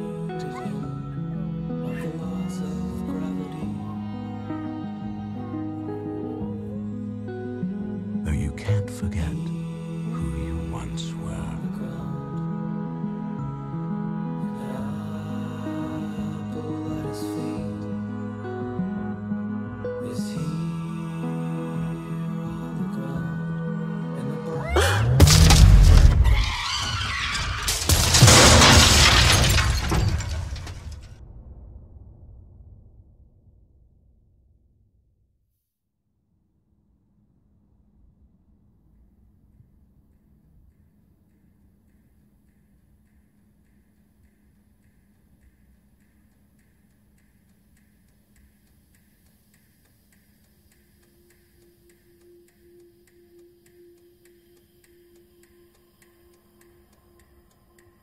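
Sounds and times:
tyres screeching: 24.5 - 28.2
car crashing: 24.8 - 32.0
glass shattering: 25.2 - 31.2
faint regular ticking: 40.0 - 58.0.

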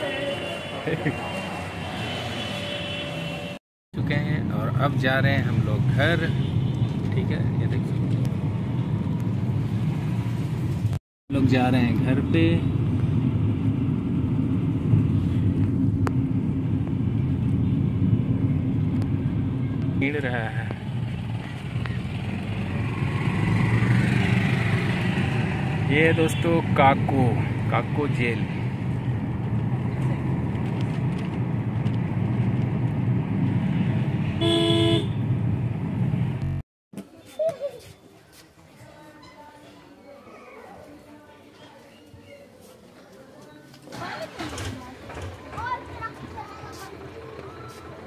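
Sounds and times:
vehicle horn beep: 0.0 - 3.6, 34.4 - 35.2
car engine and road noise: 0.0 - 36.6.

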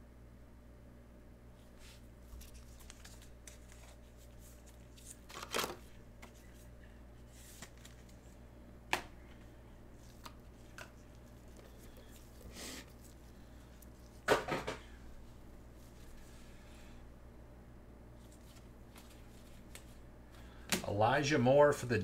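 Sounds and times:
cards sliding and rustling: 1.6 - 14.4, 18.2 - 20.0.

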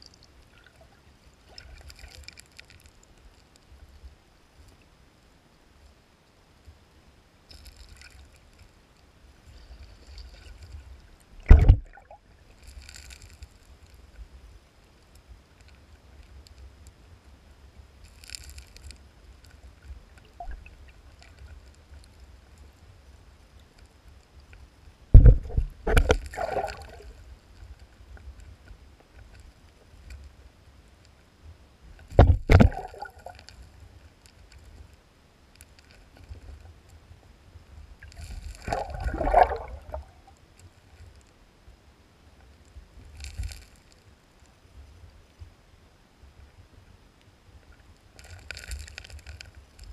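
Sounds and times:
underwater stream rushing: 9.5 - 13.2, 25.1 - 27.2, 32.0 - 33.7, 38.0 - 40.3
fish tails thumping gravel: 11.5 - 12.0.

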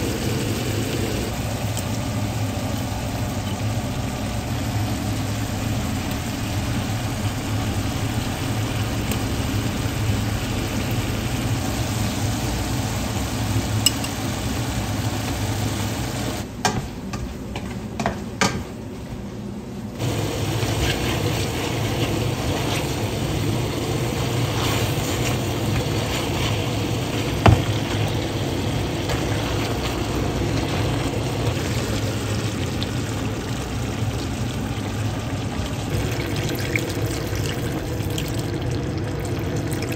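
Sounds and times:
vegetables sizzling in a pot: 0.0 - 16.5, 20.0 - 39.9
spatula stirring: 20.0 - 31.2.

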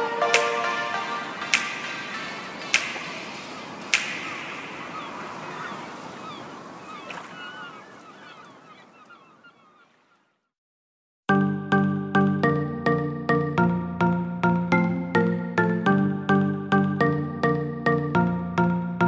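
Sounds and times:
plucked notes: 0.0 - 3.0
ringing wash with chirping glides: 0.0 - 9.9.

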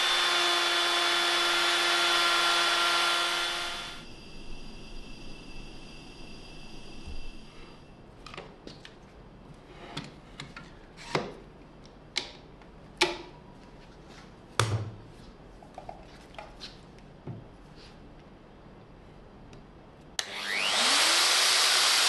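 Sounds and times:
steady high whine: 1.1 - 8.4.

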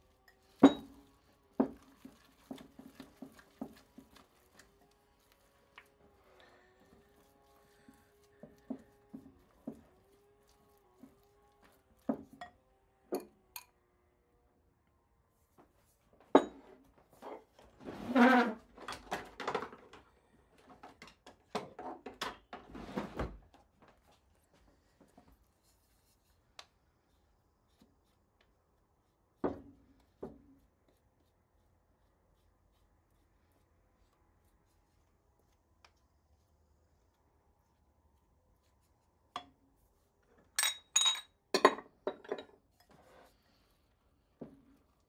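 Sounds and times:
kitchen knocks and clatter: 18.8 - 20.0, 20.8 - 23.4, 40.6 - 42.6.

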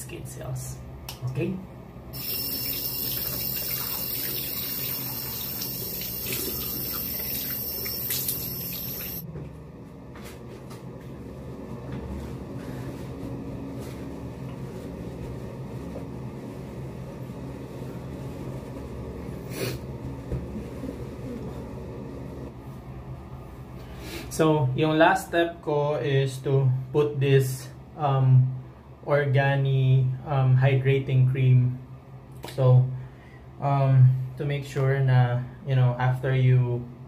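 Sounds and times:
water splashing on face: 2.2 - 9.2.

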